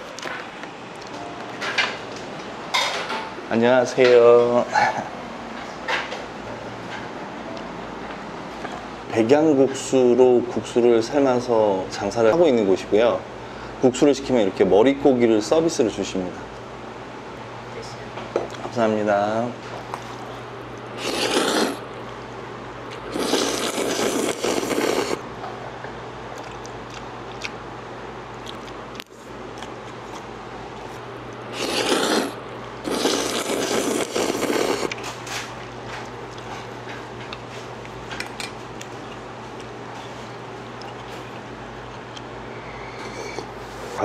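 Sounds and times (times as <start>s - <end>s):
steady low hum: 0.0s - 44.0s
noisy noodle slurping: 21.0s - 21.8s, 23.0s - 25.2s, 31.5s - 35.0s, 43.0s - 43.5s.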